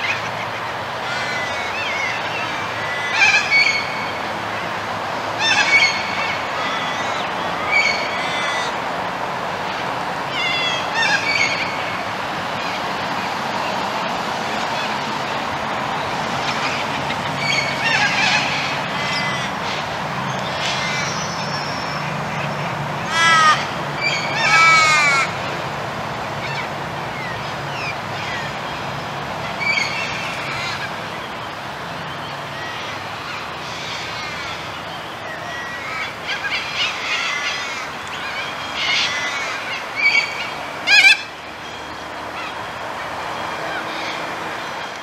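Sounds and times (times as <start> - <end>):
birds giving harsh calls: 0.0 - 8.9, 9.7 - 13.7, 14.6 - 25.6, 26.3 - 45.0.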